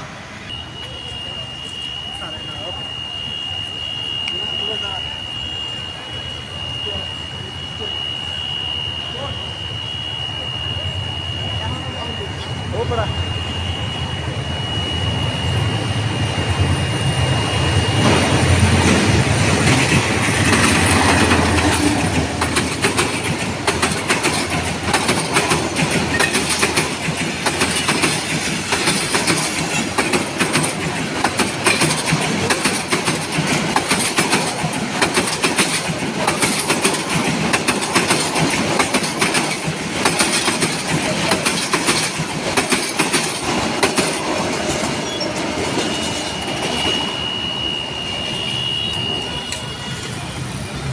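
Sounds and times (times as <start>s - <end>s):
passenger train passing: 0.0s - 50.9s
wheel squeal: 0.5s - 50.7s
wheels clattering over rail joints: 19.6s - 46.9s.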